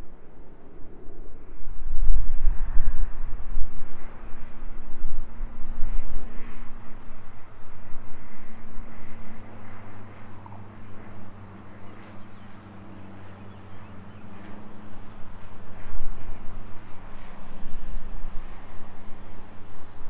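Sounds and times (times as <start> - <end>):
light aircraft propeller droning: 0.0 - 20.0.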